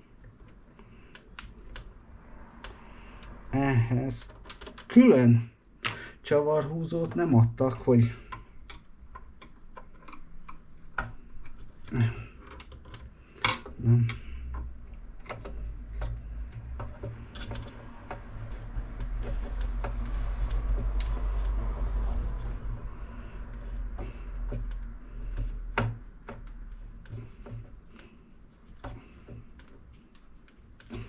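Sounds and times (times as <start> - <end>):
light clicks of plastic parts: 0.0 - 5.1, 6.8 - 31.0
screwdriver scraping and rubbing: 15.2 - 31.0.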